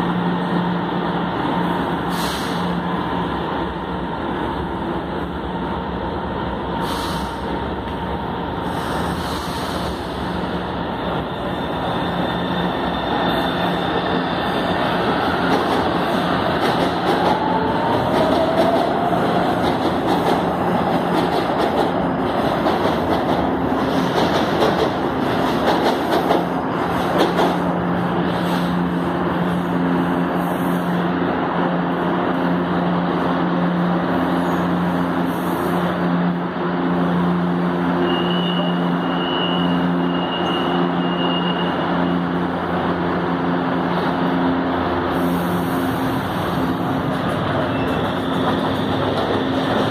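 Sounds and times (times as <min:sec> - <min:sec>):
train wheel and motor rumble: 0:00.0 - 0:49.9
train brake squeal: 0:11.3 - 0:14.2, 0:38.0 - 0:41.8.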